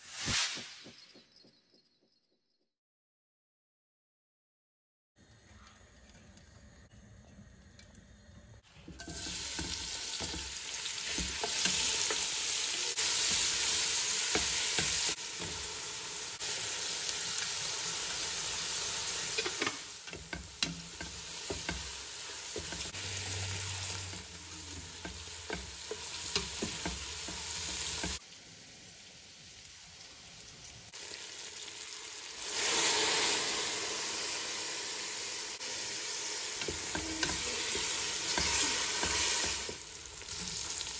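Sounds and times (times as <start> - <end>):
onions sizzling in a pot: 8.6 - 40.9.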